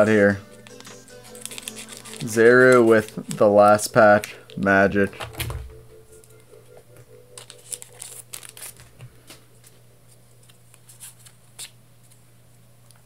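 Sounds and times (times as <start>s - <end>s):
cards sliding and being handled: 0.5s - 3.5s, 7.3s - 12.2s
wrapper crinkling: 0.5s - 4.6s, 7.3s - 9.8s.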